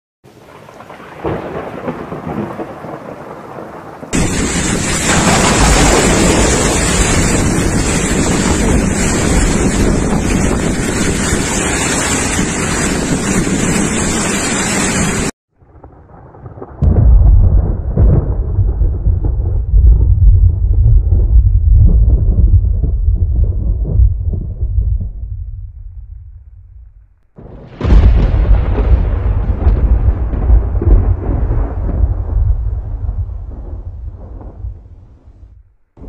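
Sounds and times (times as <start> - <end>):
heavy rain pouring: 0.3 - 15.4
low rumble of thunder: 0.8 - 14.4, 15.6 - 35.7.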